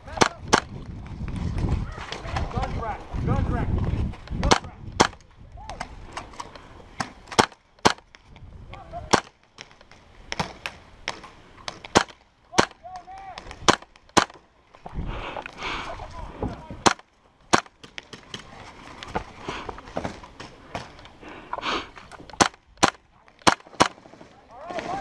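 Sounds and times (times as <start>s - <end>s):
airsoft gun shots: 13.6s - 14.4s, 22.3s - 24.0s.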